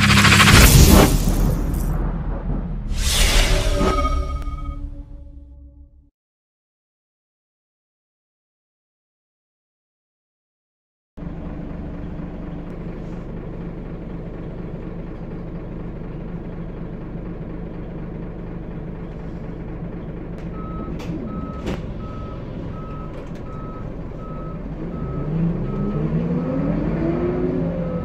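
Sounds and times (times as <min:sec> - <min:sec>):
bus diesel engine idling: 0:11.2 - 0:25.8.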